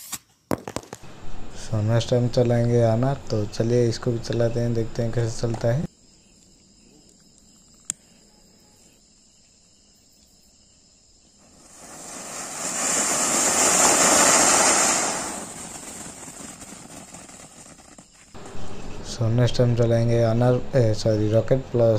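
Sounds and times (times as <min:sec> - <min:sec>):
firework fountain hissing: 0:11.4 - 0:18.4.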